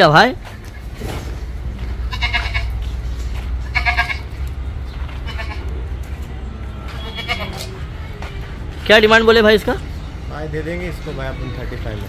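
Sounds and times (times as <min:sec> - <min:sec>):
goat bleating: 0:02.0 - 0:02.8, 0:03.6 - 0:04.4, 0:05.1 - 0:05.9, 0:06.8 - 0:07.8.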